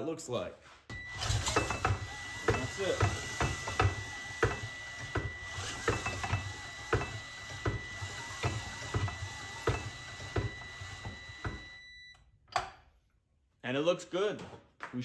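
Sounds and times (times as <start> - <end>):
drill motor whining: 0.9 - 12.2.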